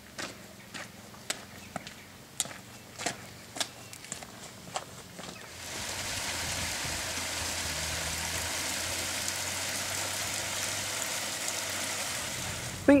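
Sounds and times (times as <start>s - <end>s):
steady rushing hiss: 5.4s - 13.0s.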